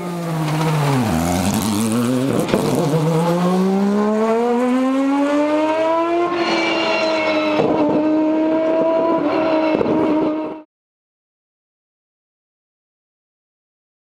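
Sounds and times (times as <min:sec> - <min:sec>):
race car rotary engine at full throttle: 0:00.0 - 0:10.7.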